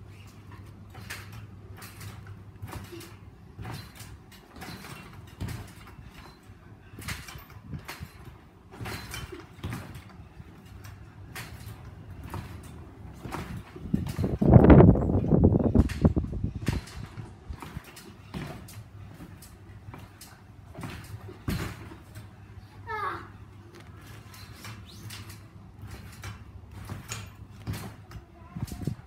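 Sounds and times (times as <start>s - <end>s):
trampoline springs creaking: 0.0s - 29.0s
feet thumping on mat: 11.4s - 22.2s.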